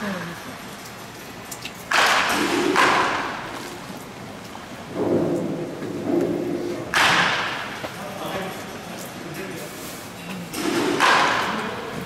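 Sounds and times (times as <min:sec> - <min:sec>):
baseball bat hitting ball: 0:01.9 - 0:03.5, 0:05.0 - 0:07.8, 0:10.6 - 0:11.6.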